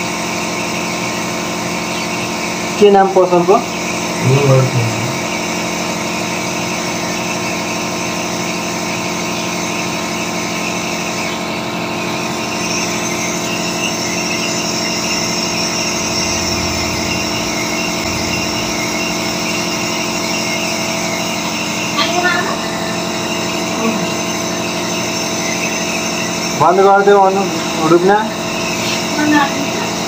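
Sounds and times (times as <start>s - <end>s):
machine humming: 0.8s - 30.0s
whining tones: 12.1s - 28.7s.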